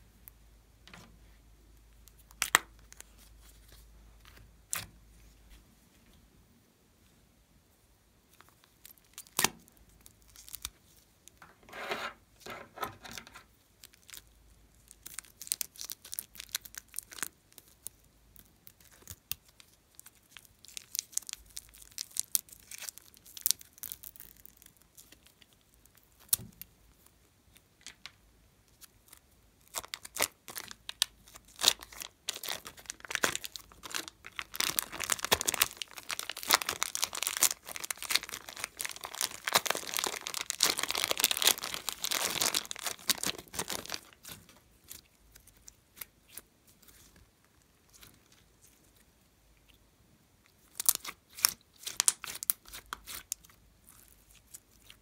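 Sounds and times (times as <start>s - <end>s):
plastic bag crinkling and tearing: 13.0s - 18.0s, 18.7s - 26.4s, 29.1s - 47.1s, 50.6s - 55.0s.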